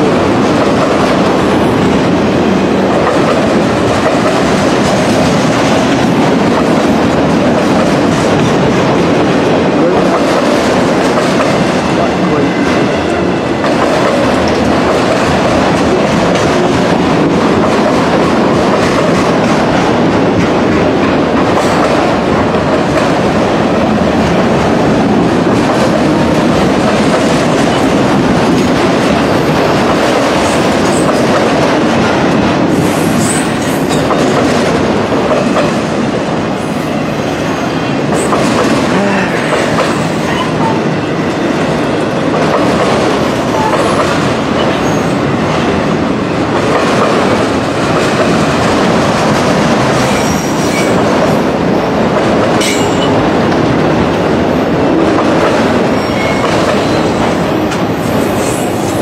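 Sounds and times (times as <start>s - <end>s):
freight train rolling past: 0.0s - 59.0s
wheels clacking over rail joints: 2.8s - 35.8s.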